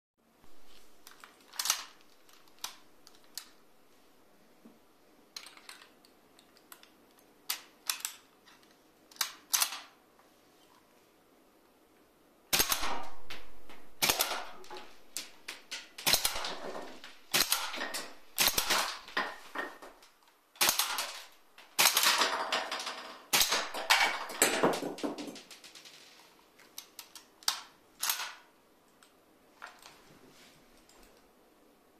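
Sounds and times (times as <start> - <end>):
rifle shots: 12.5 - 19.2, 20.6 - 22.4, 23.3 - 24.7.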